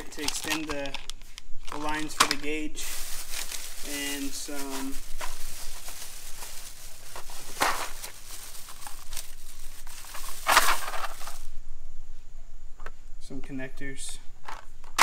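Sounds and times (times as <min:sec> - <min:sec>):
plastic bag crinkling: 0:00.0 - 0:11.5.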